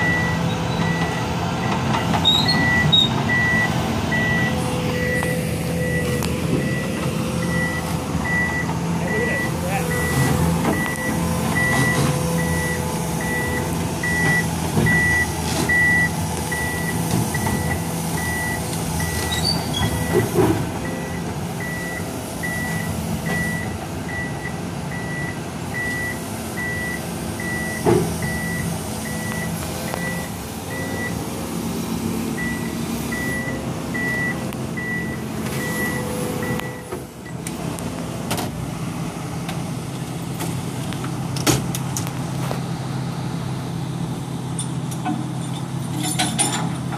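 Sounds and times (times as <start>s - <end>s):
travel alarm beeping: 0.0s - 1.2s, 2.6s - 19.2s, 20.8s - 31.2s, 32.4s - 37.4s
excavator diesel engine running: 0.0s - 46.9s.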